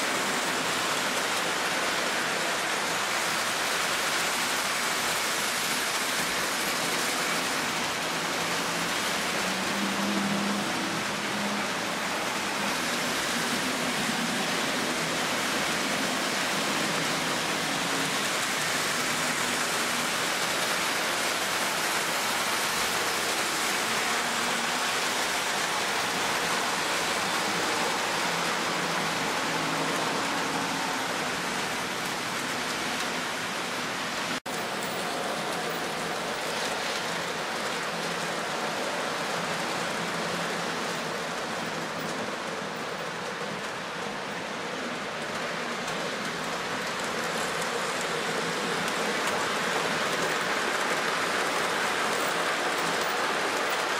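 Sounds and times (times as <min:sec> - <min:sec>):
model train wheels on rails: 0:00.0 - 0:53.9.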